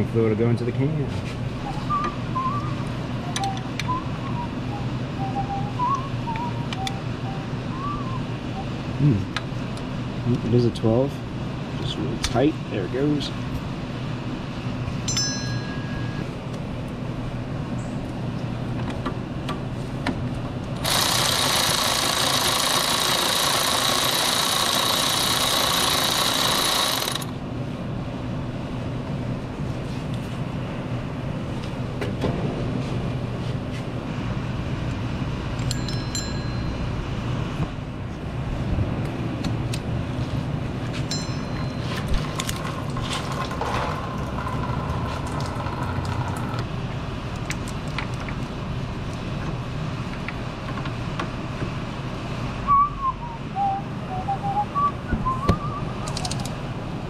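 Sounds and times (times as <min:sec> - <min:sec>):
metallic tool clinks: 0:15.1 - 0:16.2, 0:35.6 - 0:36.8
electric ratchet whirring: 0:20.8 - 0:27.4.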